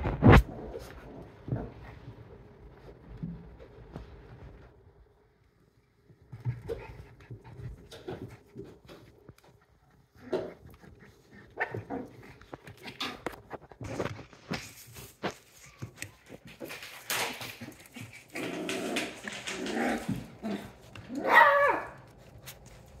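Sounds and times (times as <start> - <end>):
puppy yelping bark: 21.1 - 22.0.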